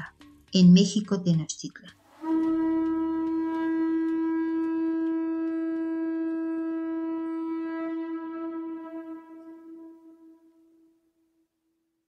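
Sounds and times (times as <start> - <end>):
long held horn note: 2.2 - 10.6.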